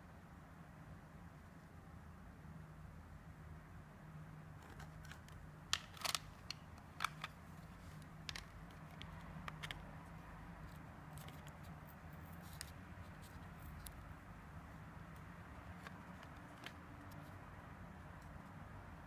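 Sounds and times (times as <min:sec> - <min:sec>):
plastic clicks and taps: 0:08.0 - 0:09.9.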